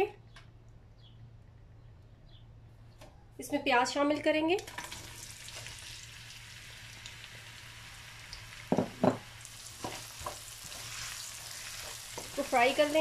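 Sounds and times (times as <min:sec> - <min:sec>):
onions sizzling in hot oil: 0:04.7 - 0:13.0.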